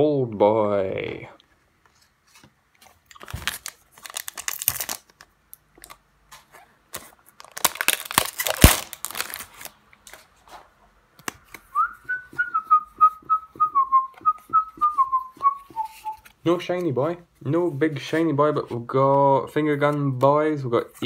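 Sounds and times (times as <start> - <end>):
foil wrapper tearing and crinkling: 3.1 - 5.3, 7.0 - 9.8
person whistling a tune: 11.7 - 16.2.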